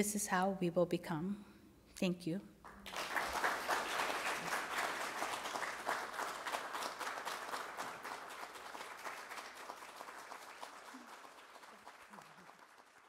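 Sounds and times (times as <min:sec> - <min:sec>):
audience applauding: 0:02.6 - 0:13.0.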